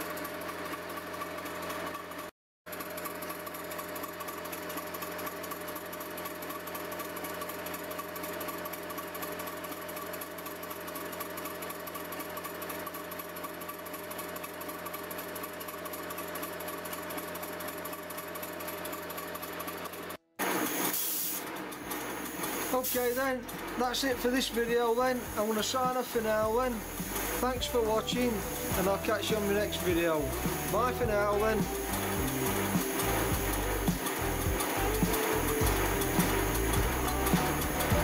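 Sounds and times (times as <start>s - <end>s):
steam engine mechanical clatter: 0.0s - 38.0s.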